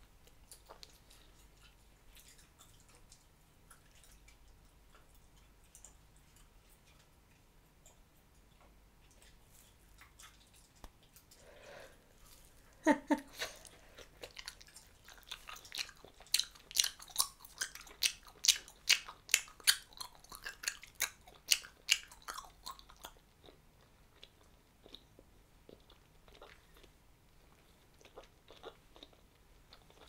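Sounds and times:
gum chewing smacks: 0:09.0 - 0:11.4, 0:13.3 - 0:23.6.

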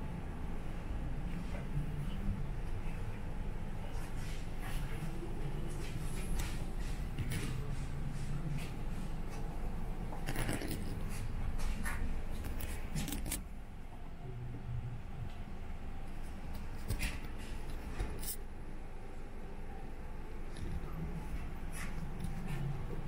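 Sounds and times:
handling clicks and rustles: 0:10.1 - 0:13.5.

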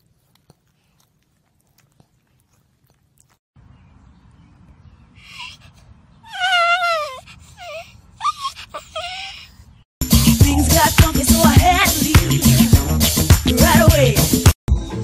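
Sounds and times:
small dog whining: 0:05.3 - 0:09.6.

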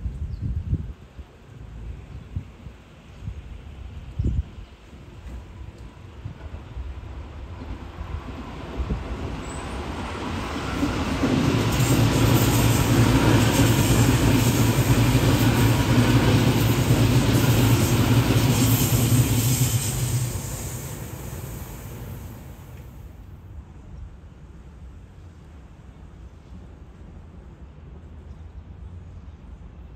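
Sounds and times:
train wheels rumbling on rail: 0:00.0 - 0:23.7.

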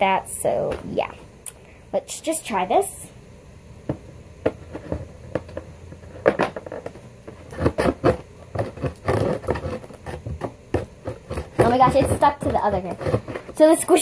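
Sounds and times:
cardboard scraping and rubbing: 0:05.9 - 0:14.0.

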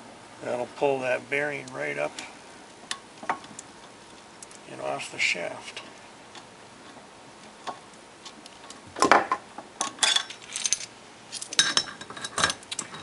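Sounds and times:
metal clinks and knocks: 0:09.8 - 0:13.0.

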